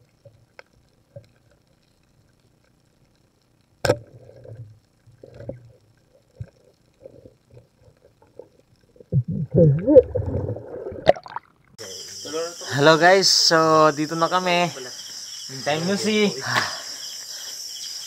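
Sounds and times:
faint ticks: 0.0 - 9.2
spear gun crack underwater: 3.8 - 4.2
low underwater rumbling: 4.0 - 11.8.

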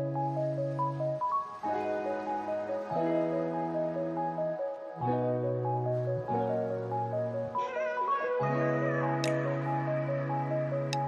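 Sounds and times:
slow instrumental music: 0.0 - 11.0.

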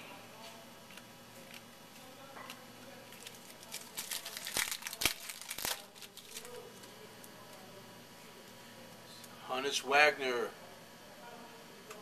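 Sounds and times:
wrapper crinkling: 3.1 - 6.9.

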